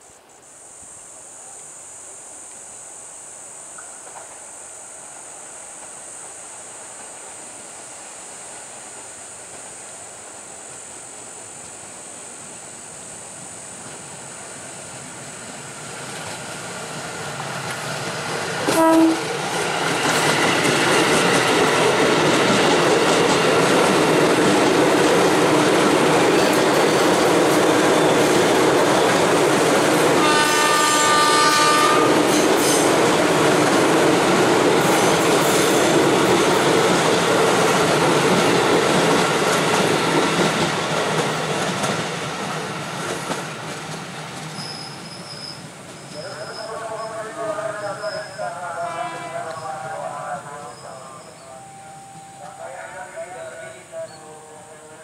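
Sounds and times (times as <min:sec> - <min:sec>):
electric train passing: 0:01.1 - 0:55.0
train horn blast: 0:18.6 - 0:19.4, 0:30.1 - 0:32.9, 0:48.7 - 0:55.0
wheel rumble and clickety-clack: 0:34.9 - 0:44.8
brief higher tone: 0:48.0 - 0:55.0.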